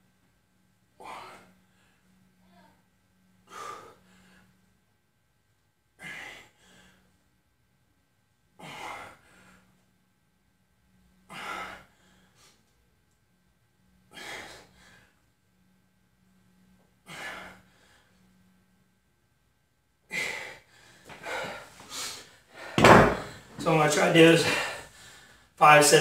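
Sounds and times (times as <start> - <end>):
man breathing forcefully: 1.0 - 2.1, 3.4 - 4.6, 6.0 - 7.1, 8.6 - 9.7, 11.3 - 12.6, 14.1 - 15.2, 17.0 - 18.1, 20.1 - 25.6.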